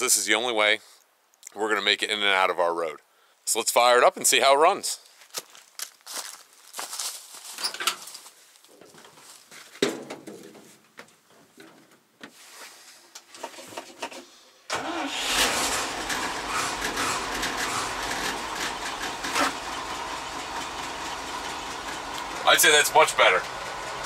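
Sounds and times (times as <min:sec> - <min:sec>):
truck engine starting and idling: 0:14.7 - 0:24.0.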